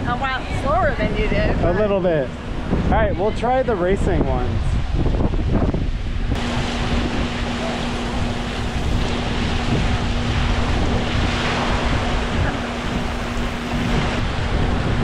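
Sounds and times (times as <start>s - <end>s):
steady hum: 0.0s - 15.0s
wind buffeting microphone: 0.0s - 15.0s
water rushing down slides: 6.4s - 15.0s.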